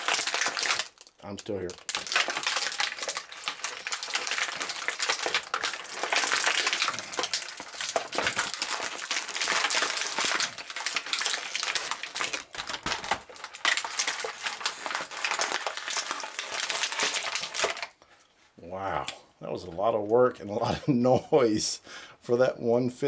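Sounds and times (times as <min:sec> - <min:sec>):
plastic packaging crackling: 0:00.0 - 0:18.0.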